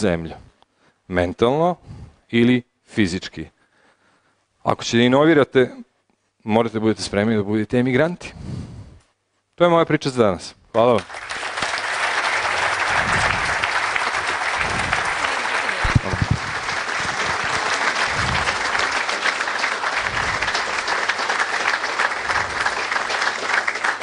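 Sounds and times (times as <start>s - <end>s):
audience applauding: 10.9s - 24.0s.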